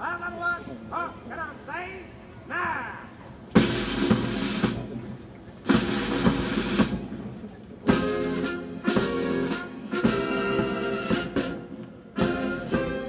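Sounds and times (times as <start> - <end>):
military brass band playing a march: 3.5 - 13.0.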